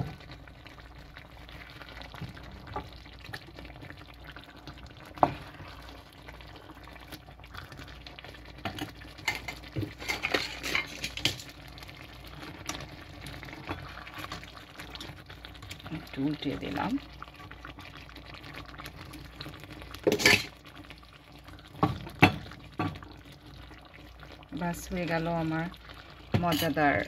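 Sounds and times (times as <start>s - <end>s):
curry sizzling faintly: 0.0s - 27.0s
metal tongs in a pan: 8.6s - 11.5s, 20.1s - 20.5s, 26.4s - 26.9s
wooden spatula scraping a pan: 9.3s - 11.4s.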